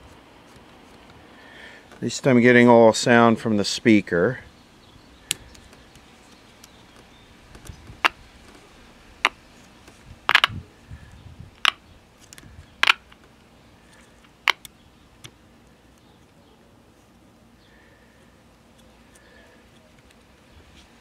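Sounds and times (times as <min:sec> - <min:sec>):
sharp clicks: 0:10.3 - 0:10.6, 0:11.6 - 0:13.3.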